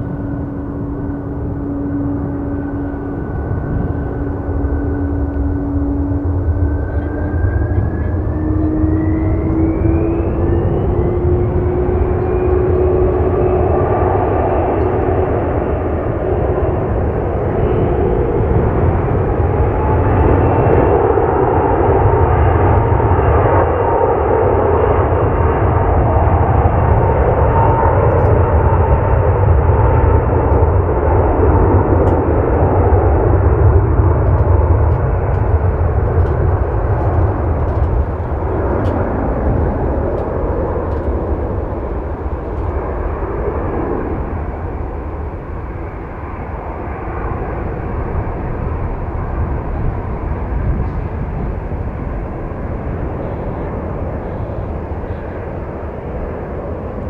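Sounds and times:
thin jet whine: 0.0 - 22.6
jet engine rumble: 0.0 - 57.0.

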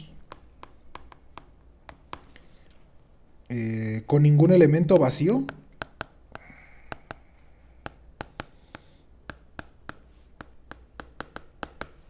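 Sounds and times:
stylus tapping on tablet screen: 0.0 - 2.6, 5.2 - 12.0.

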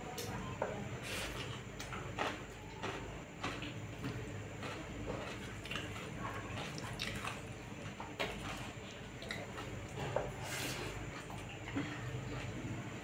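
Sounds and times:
chewing with lip smacks: 1.3 - 12.6.

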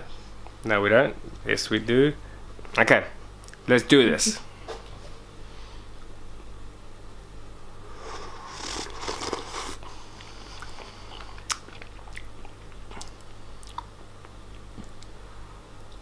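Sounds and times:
steady low hum: 0.0 - 16.0
wet mouth eating noises: 8.0 - 15.1.

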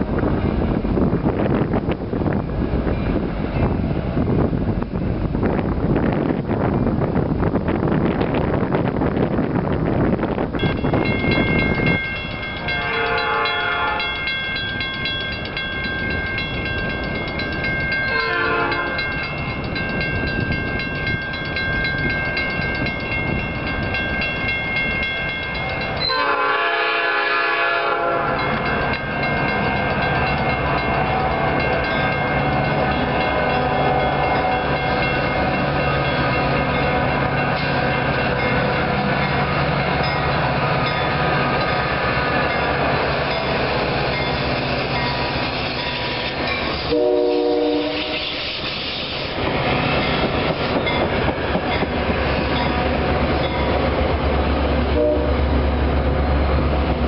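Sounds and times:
wind on microphone: 0.0 - 57.0
bell ringing: 10.6 - 26.3
locomotive air horn: 12.6 - 14.2, 18.1 - 19.1, 26.0 - 28.5, 46.8 - 48.6, 54.9 - 55.5.

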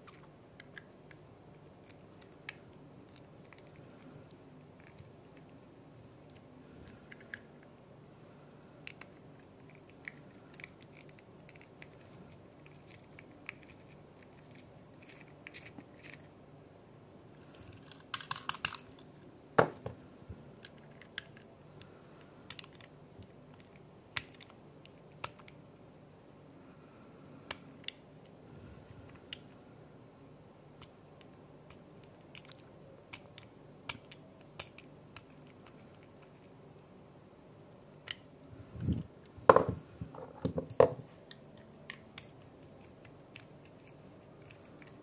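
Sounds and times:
clicks and taps of small parts: 17.7 - 19.0.

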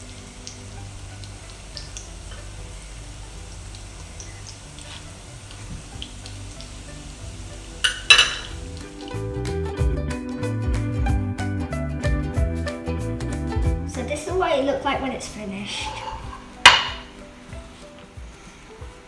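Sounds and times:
food frying in hot oil: 0.0 - 9.8
quiet background music: 0.0 - 19.0
metal tongs striking a plate: 16.0 - 17.1.

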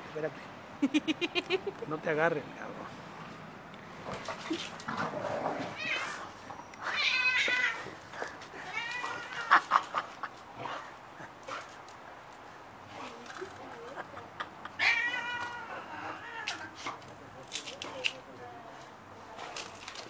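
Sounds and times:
cat yowling: 6.9 - 7.9, 8.6 - 9.6, 14.8 - 16.8.

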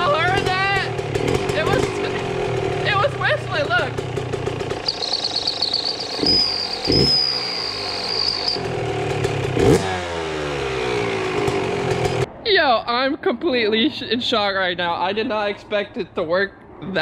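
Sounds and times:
two-stroke engine revving: 0.0 - 12.3
high steady exhaust whistle: 4.8 - 8.7.

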